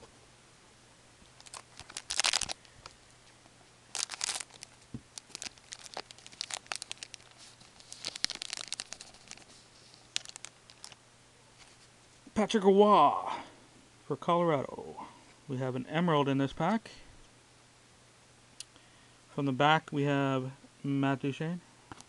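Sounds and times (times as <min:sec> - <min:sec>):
foil wrapper tearing and crinkling: 0:01.4 - 0:03.0, 0:03.9 - 0:11.0
cards crackling and snapping: 0:01.4 - 0:11.0.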